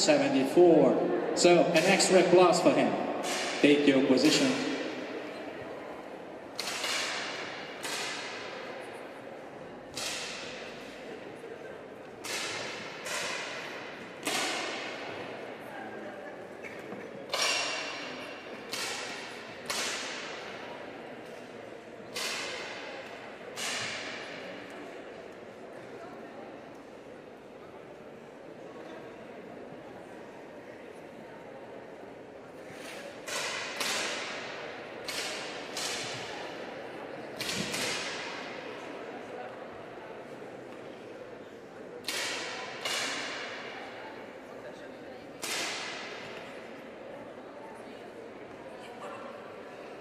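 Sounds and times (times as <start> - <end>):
air pistol shots echoing: 3.2 - 4.7
air pistol shots with hall reverberation: 3.2 - 5.1, 6.6 - 8.7, 9.9 - 10.9, 12.2 - 15.1, 18.7 - 20.6, 33.3 - 36.3, 37.4 - 38.6, 42.0 - 43.8, 45.4 - 46.4.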